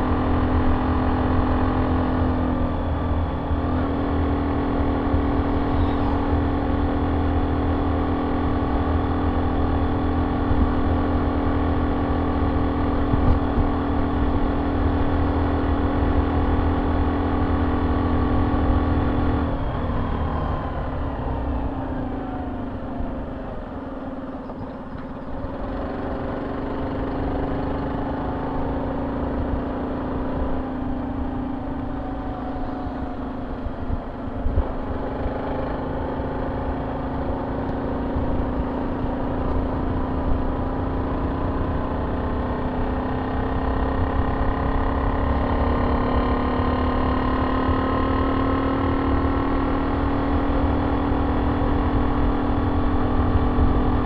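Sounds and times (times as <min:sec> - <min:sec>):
wind rumble on microphone: 0:12.4 - 0:17.0, 0:31.7 - 0:35.4.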